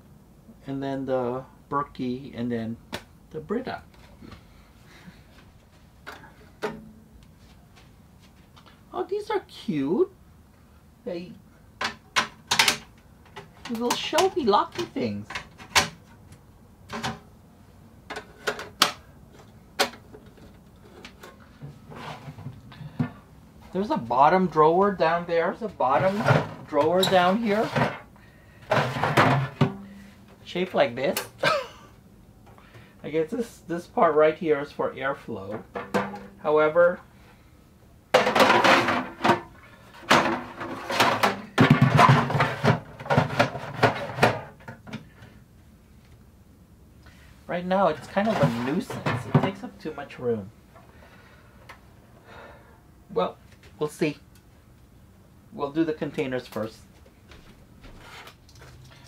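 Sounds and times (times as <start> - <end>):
plastic drawer clattering: 26.0 - 28.0, 38.2 - 44.8.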